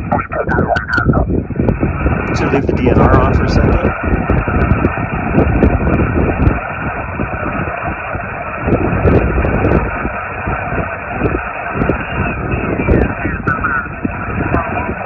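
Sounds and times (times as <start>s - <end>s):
radio static and band noise: 0.0s - 1.4s, 2.2s - 4.2s, 11.6s - 15.0s.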